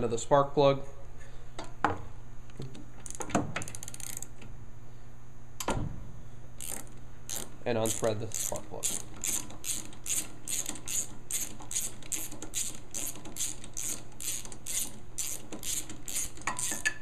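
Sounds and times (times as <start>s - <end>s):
ratchet clicking: 3.0s - 4.3s, 6.6s - 17.0s.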